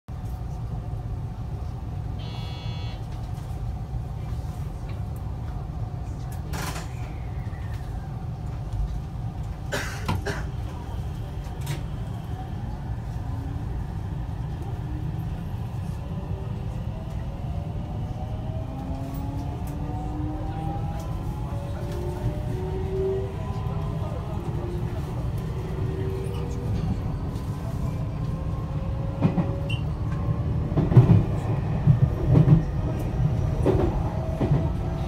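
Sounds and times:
short electronic tone: 2.2s - 3.0s.

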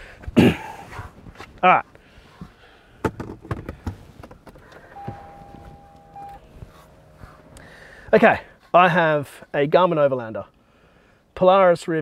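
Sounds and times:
clicks and knocks inside car: 2.4s - 6.3s
faint low tone: 4.8s - 8.1s
electronic beep: 4.9s - 7.2s.

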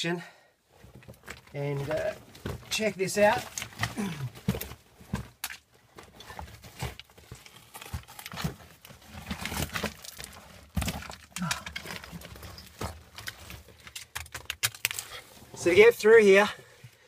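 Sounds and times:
knocks and scrapes against rock: 0.9s - 16.1s.

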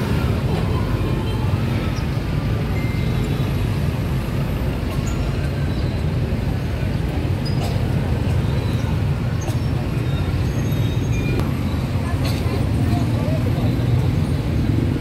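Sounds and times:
low rumble of street traffic: 0.0s - 15.0s.

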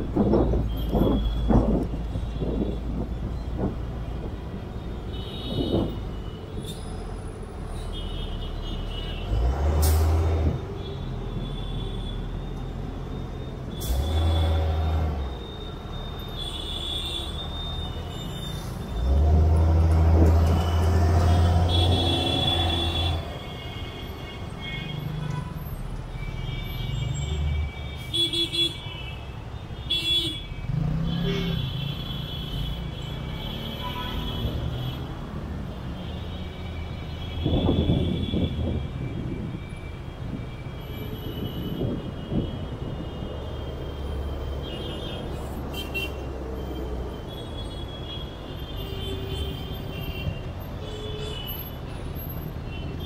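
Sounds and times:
road and engine rumble: 0.0s - 53.0s
vehicle horns honking: 20.5s - 29.2s, 29.8s - 35.1s, 35.9s - 39.5s, 40.7s - 46.3s, 47.1s - 51.8s.

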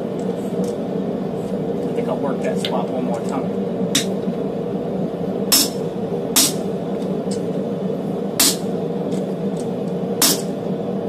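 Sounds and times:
machine hum: 0.0s - 11.0s
hammer strikes on metal: 5.5s - 5.8s, 6.4s - 6.6s, 8.4s - 8.7s, 10.2s - 10.5s.

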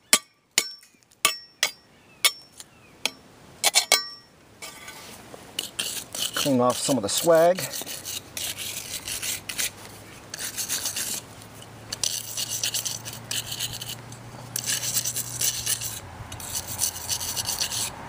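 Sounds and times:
wire brush scrubbing metal: 3.6s - 17.9s.

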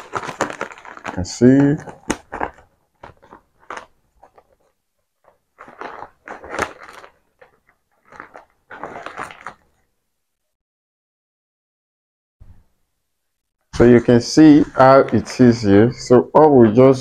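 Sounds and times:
stiff fabric rustling and crinkling: 0.0s - 9.9s.

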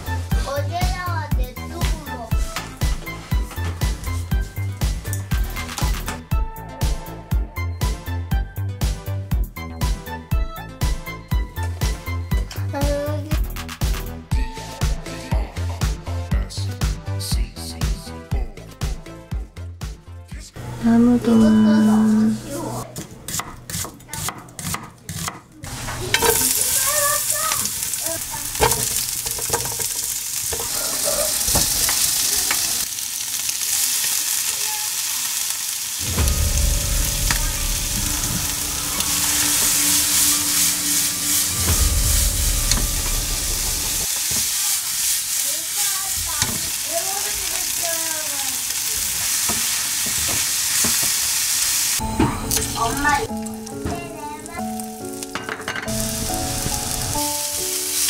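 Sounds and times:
food sizzling in a frying pan: 0.0s - 6.0s, 25.6s - 58.0s
spatula stirring: 23.0s - 32.8s
knife cutting onion on wooden board: 23.3s - 25.5s.

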